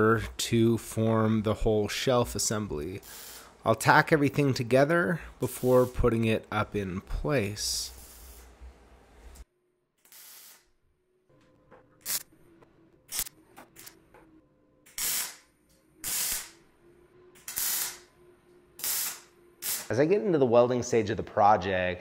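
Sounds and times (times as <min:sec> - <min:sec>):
welding arc crackling: 0:10.0 - 0:10.7, 0:12.0 - 0:12.3, 0:13.1 - 0:13.9, 0:14.9 - 0:16.6, 0:17.4 - 0:18.1, 0:18.8 - 0:20.0.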